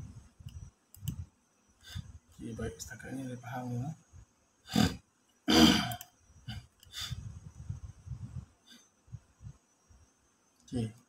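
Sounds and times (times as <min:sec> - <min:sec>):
person clearing throat: 0:04.7 - 0:06.0
faint low rumbling: 0:06.4 - 0:10.1.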